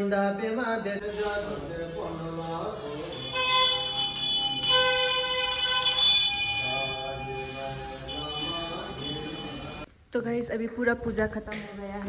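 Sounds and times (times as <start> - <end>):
bright ringing bell tones: 3.1 - 9.9.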